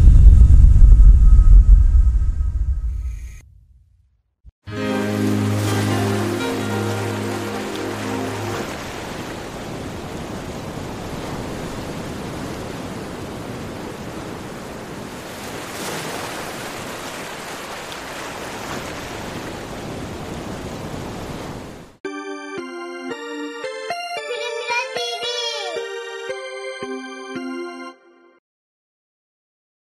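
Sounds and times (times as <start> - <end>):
music: 4.6 - 8.7, 22.0 - 28.4
waves washing: 4.7 - 22.0.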